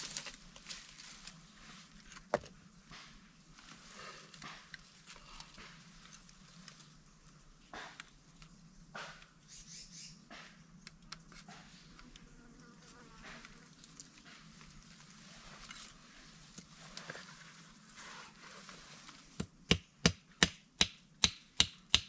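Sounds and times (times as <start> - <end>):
hands rustling sticks and soil: 0.0 - 9.0, 13.2 - 19.5.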